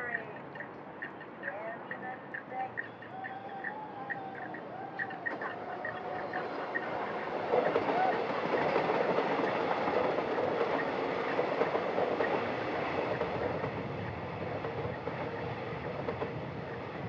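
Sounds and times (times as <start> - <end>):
train wheels rumbling on rails: 2.7 - 17.0.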